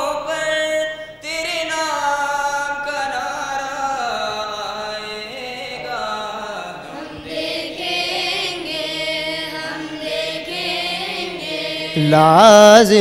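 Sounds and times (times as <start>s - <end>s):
choir singing unaccompanied: 4.6s - 13.0s.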